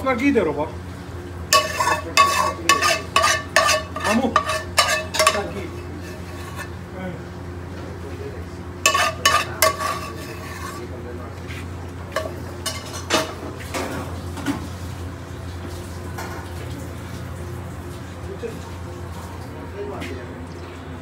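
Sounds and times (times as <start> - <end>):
metal spoon scraping frying pan: 1.5 - 6.8, 8.8 - 11.0, 12.1 - 13.4.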